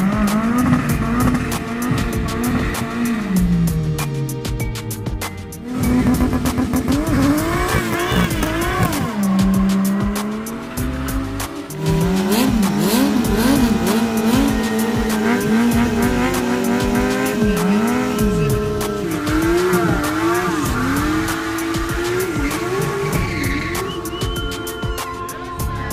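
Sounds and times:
engines revving hard: 0:00.0 - 0:04.5, 0:05.6 - 0:24.8
tyres hissing and squealing: 0:07.3 - 0:25.9.

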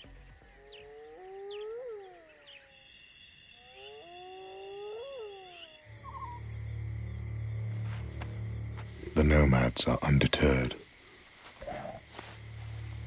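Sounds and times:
night insects chirring: 0:00.0 - 0:13.0
wild animal calling: 0:00.4 - 0:02.9, 0:03.5 - 0:07.6, 0:11.4 - 0:12.8.

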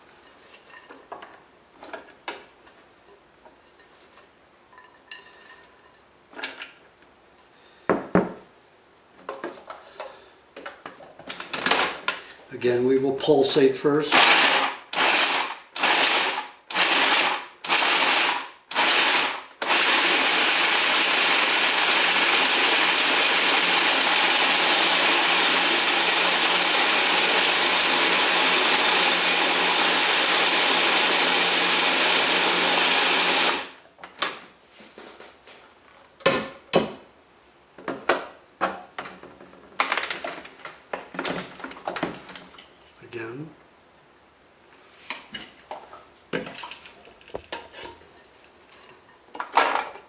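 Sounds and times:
electric blade grinder chopping: 0:14.1 - 0:33.8.

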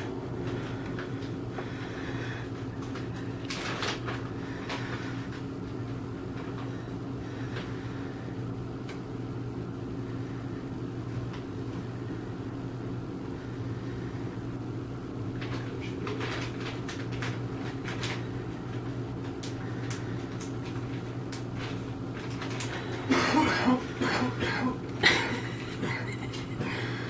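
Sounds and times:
low mechanical hum: 0:00.0 - 0:27.0.

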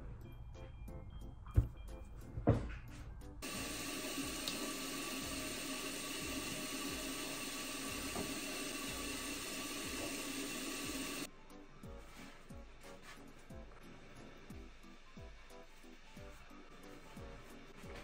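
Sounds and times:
tap water running into sink: 0:03.4 - 0:11.3.

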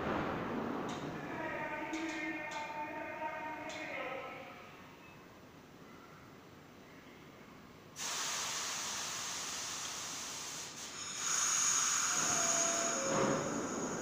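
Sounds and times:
compressed air hiss: 0:08.0 - 0:14.0
thin high squeal: 0:11.2 - 0:14.0.

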